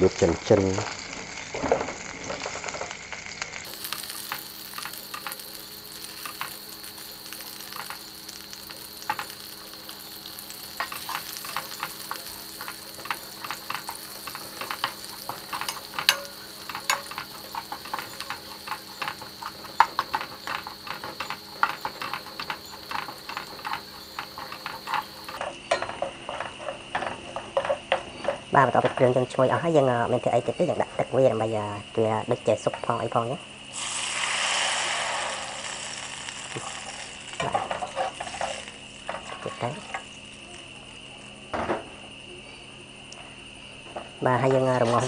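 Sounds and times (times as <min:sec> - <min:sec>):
food sizzling in hot oil: 0:00.0 - 0:42.2
ladle scraping metal pot: 0:03.6 - 0:29.2.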